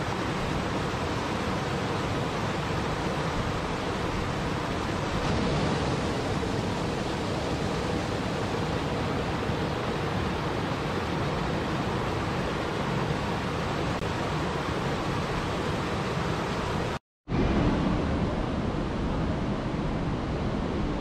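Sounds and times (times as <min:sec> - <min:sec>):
water splashing over boulders: 0:00.1 - 0:13.1.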